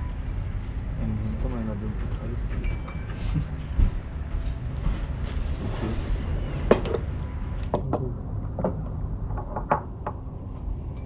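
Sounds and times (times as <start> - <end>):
light clinks and knocks: 2.4 - 3.8.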